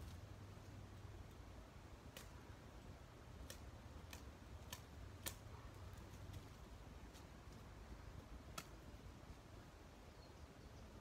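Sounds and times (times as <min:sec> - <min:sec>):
blade clicks cutting weed stems: 0:02.1 - 0:02.4, 0:03.3 - 0:06.5, 0:08.4 - 0:08.8.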